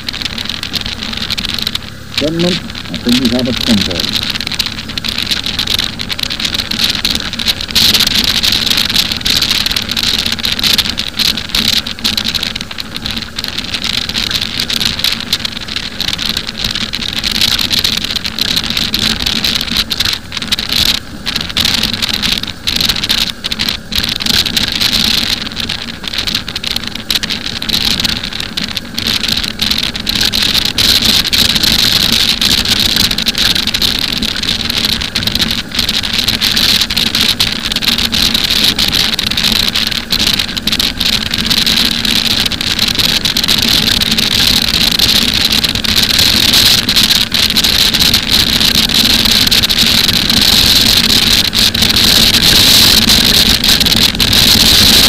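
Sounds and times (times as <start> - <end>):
motorcycle engine running: 0.0 - 55.0
wind rushing over microphone: 0.0 - 55.0.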